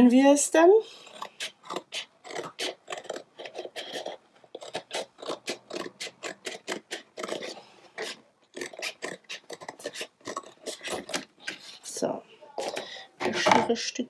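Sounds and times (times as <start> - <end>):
scissors snipping cardboard: 8.8 - 11.6.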